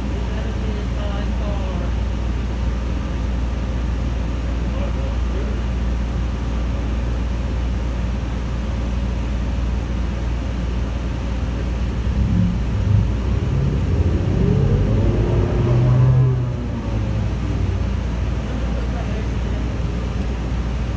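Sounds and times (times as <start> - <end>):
bus engine running: 0.0 - 20.9
rising whine: 11.6 - 20.4.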